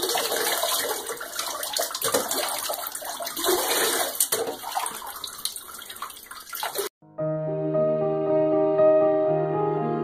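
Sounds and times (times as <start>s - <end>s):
water sloshing in a bathtub: 0.0s - 7.0s.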